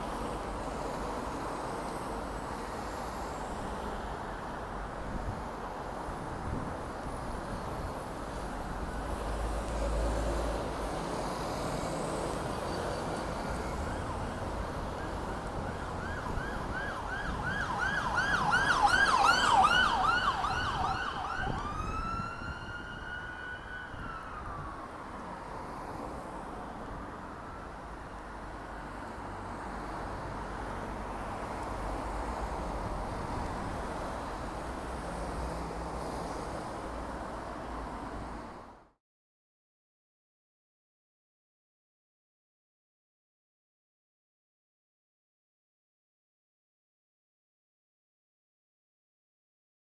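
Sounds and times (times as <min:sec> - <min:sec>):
traffic noise: 0:00.0 - 0:39.0
emergency siren yelping and wailing: 0:13.3 - 0:25.3, 0:27.2 - 0:28.9.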